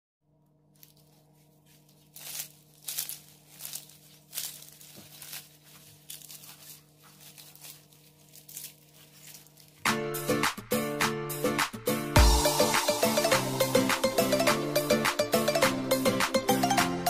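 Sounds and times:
flatbread crackling as torn: 0.6 - 9.9.

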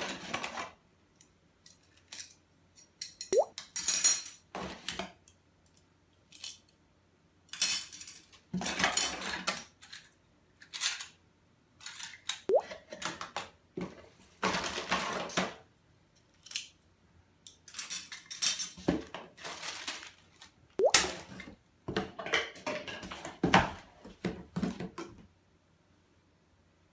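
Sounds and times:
metal parts clinking: 17.5 - 18.8.

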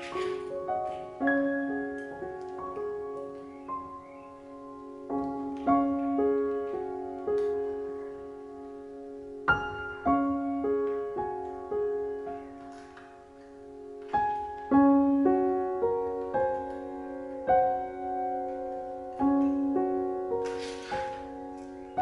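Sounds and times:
slow solo piano music: 0.0 - 22.0.

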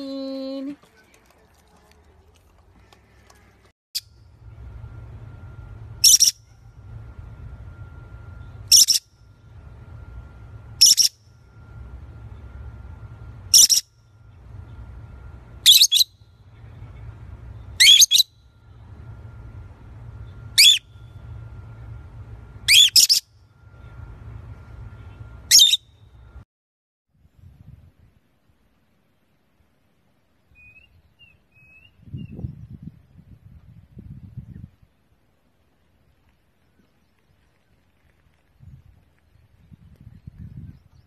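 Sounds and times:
faint steady hum: 0.0 - 26.4.

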